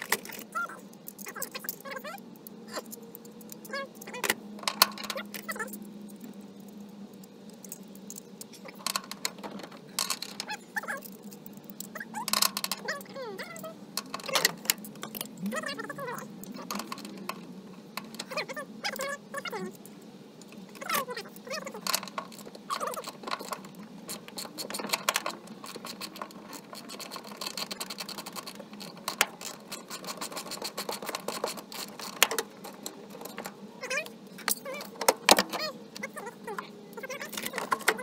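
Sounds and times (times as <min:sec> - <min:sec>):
metallic rattles: 0:02.7 - 0:05.9, 0:06.6 - 0:19.7, 0:20.6 - 0:36.1
short squeaks: 0:20.8 - 0:38.0.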